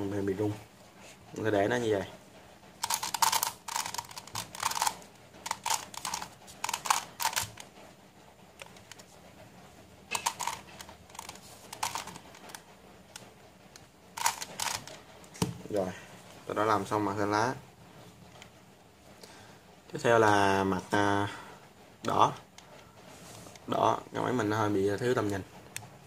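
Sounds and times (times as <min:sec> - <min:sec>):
plastic puzzle clicking: 0:02.8 - 0:07.6, 0:10.1 - 0:12.6, 0:14.2 - 0:15.0.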